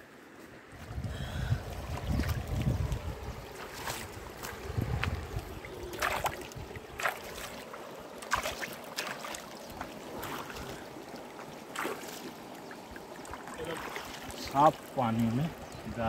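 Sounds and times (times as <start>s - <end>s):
hands splashing vegetables in water: 5.8s - 7.5s, 8.2s - 9.4s.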